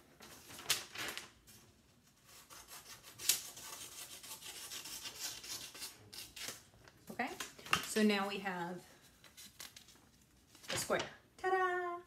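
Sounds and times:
paper rustling: 0.1 - 1.8, 9.0 - 11.1
scissors cutting paper: 2.2 - 6.6.

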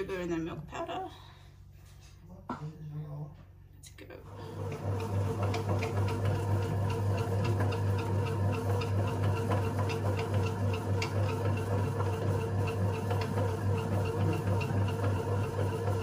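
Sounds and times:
bread maker motor humming: 4.2 - 16.0.

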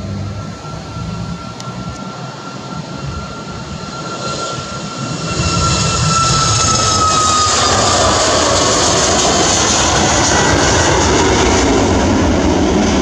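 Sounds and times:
jet engines at takeoff: 0.0 - 13.0.

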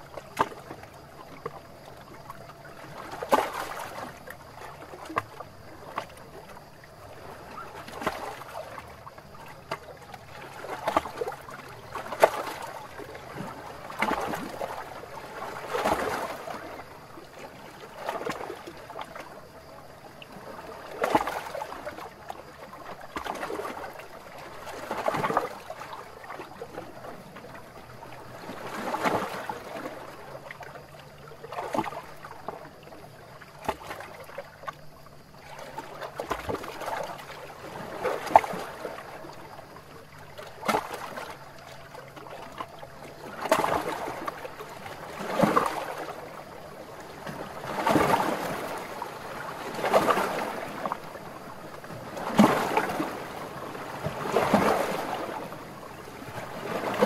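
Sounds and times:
waves splashing against rocks: 47.2 - 50.9, 52.0 - 55.5.

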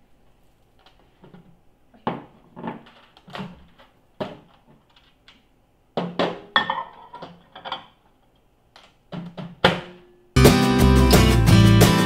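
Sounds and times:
plate knocking and clinking: 6.4 - 8.0.

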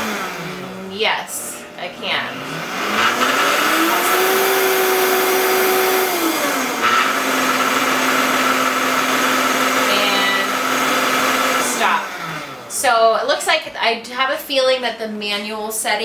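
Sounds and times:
blender motor running: 0.0 - 12.8.

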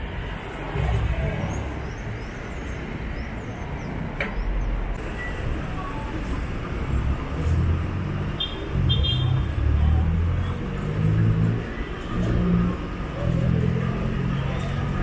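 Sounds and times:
bus engines rumbling: 0.0 - 15.0
passing street traffic: 0.0 - 15.0.

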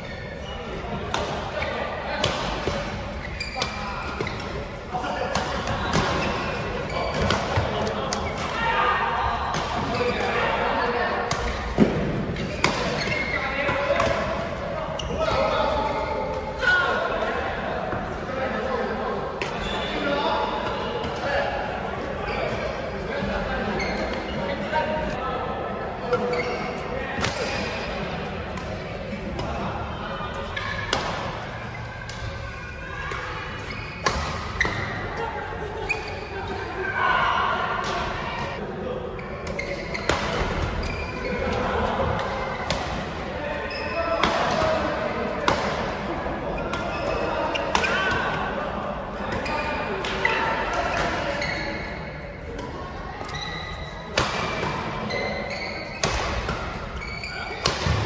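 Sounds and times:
murmur of voices: 0.0 - 58.0
badminton rackets hitting shuttlecock: 54.1 - 58.0.

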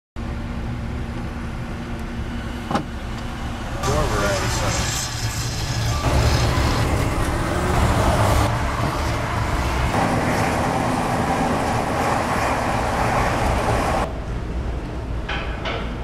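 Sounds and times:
tyre and engine hum: 0.2 - 16.0
rushing wind noise: 3.9 - 15.2.

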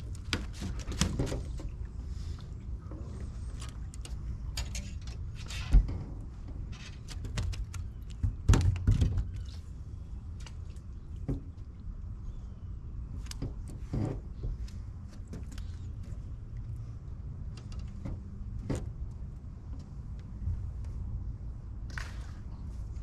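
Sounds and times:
steady low rumble: 9.6 - 23.0.

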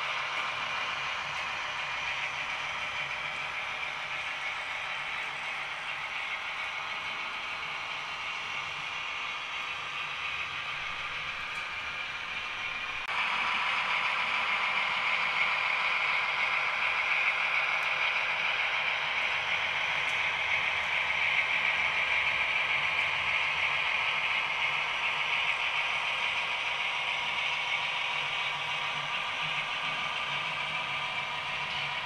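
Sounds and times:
model diesel engine sound: 0.0 - 32.0
model train running noise: 0.0 - 32.0.

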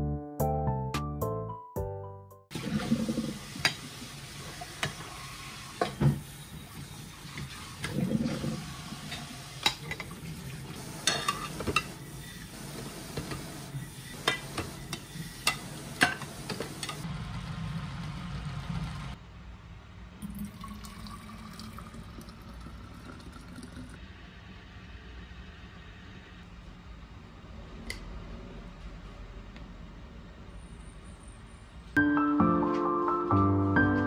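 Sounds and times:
pot of water boiling: 2.5 - 19.2
dishes clinking: 9.1 - 10.2, 11.0 - 12.0.

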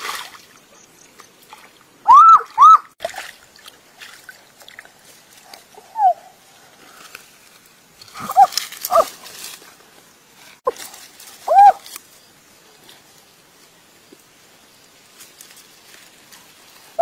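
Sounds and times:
water sloshing: 0.0 - 2.0, 3.0 - 5.5
animal yelping: 8.2 - 9.1.

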